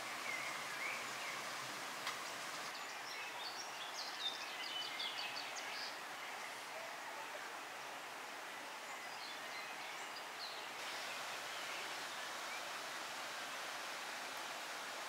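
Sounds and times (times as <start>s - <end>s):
wind in foliage: 0.0s - 15.0s.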